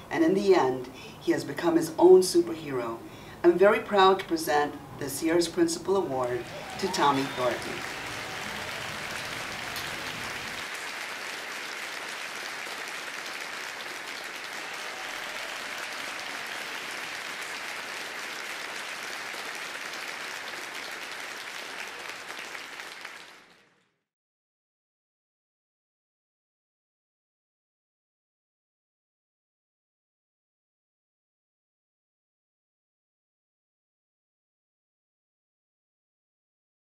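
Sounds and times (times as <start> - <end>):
crowd applauding: 6.2 - 24.0.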